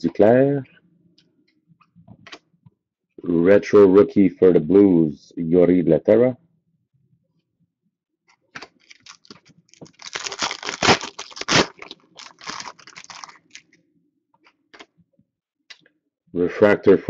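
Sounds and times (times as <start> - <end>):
plastic wrapper tearing and crinkling: 8.6 - 13.8.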